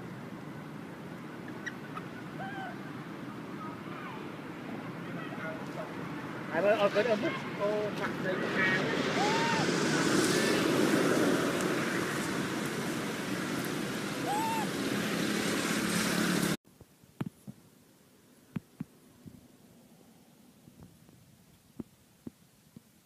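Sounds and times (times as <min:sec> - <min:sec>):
monkey coo calls: 0:01.4 - 0:02.9, 0:14.2 - 0:14.7.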